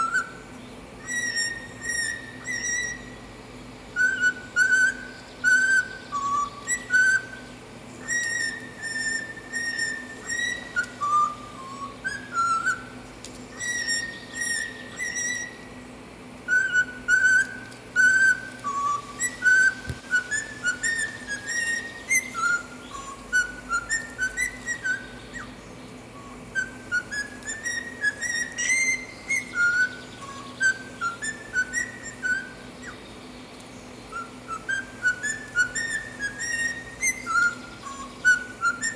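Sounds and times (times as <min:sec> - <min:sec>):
cockatiel whistling: 0:00.0 - 0:03.3, 0:03.9 - 0:15.8, 0:16.5 - 0:25.6, 0:26.2 - 0:33.0, 0:34.1 - 0:38.9.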